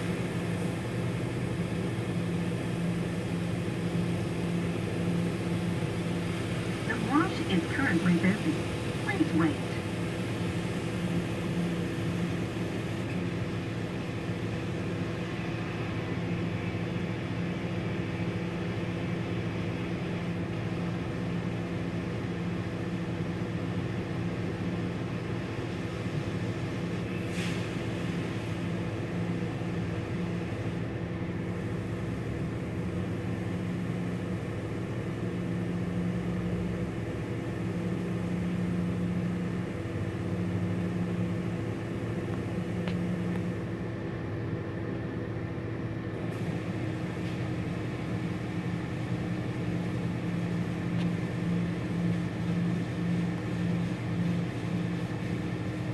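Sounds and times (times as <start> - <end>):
car wash machine hum: 3.8 - 16.7.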